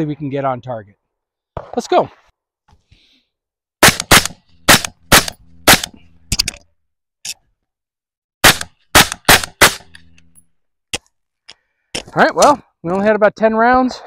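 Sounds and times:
suppressed rifle shots: 3.8s - 6.0s, 8.4s - 10.0s.

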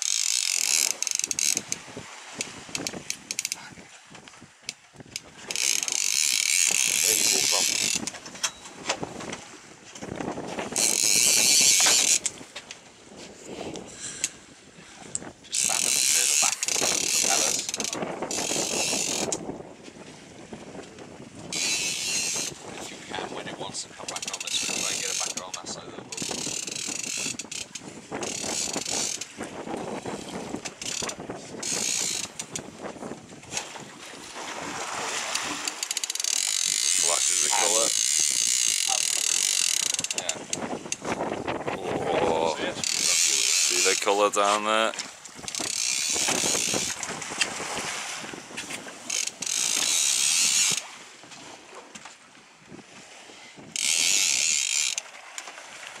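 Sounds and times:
fishing reel ratchet clicking: 0.0s - 1.8s, 2.4s - 3.6s, 4.7s - 8.6s, 10.7s - 12.4s, 15.2s - 19.4s, 21.5s - 22.6s, 24.1s - 29.3s, 30.1s - 32.7s, 35.3s - 41.1s, 42.8s - 44.1s, 45.4s - 47.1s, 49.1s - 50.9s, 53.8s - 55.5s
wind on microphone: 0.8s - 35.8s, 36.4s - 44.4s, 45.0s - 54.7s.

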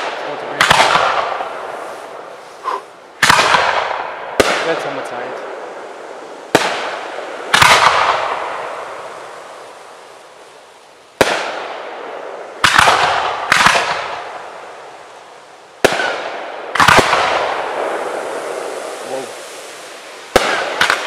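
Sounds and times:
firework shells bursting: 15.8s - 21.0s.

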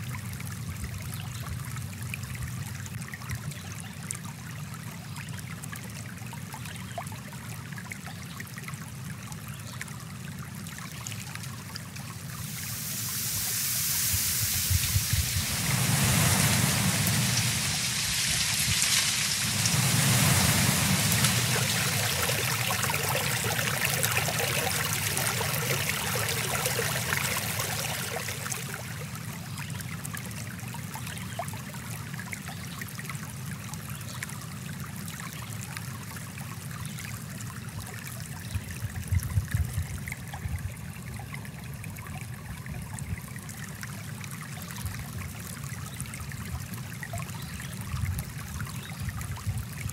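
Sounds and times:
stream water rushing: 11.5s - 30.9s.

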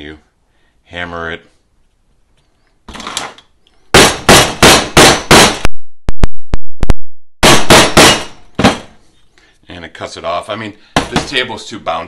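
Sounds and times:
mallet striking a punch: 4.0s - 5.7s, 7.4s - 8.9s.

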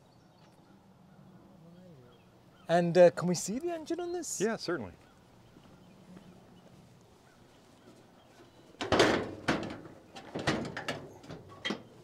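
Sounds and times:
hood latch metal clunk: 8.8s - 11.9s.

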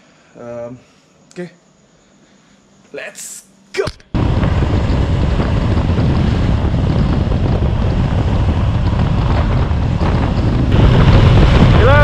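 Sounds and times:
wind buffeting microphone: 4.2s - 12.0s.

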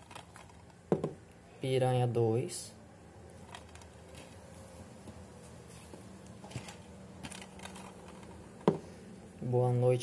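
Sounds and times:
plastic cases clicking and rustling: 0.0s - 1.2s, 3.4s - 4.4s, 6.4s - 8.8s
low steady hum: 0.0s - 10.0s.

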